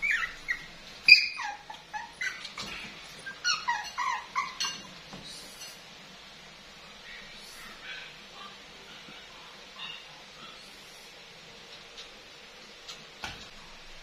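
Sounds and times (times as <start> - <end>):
puppy whining: 0.0 - 5.2.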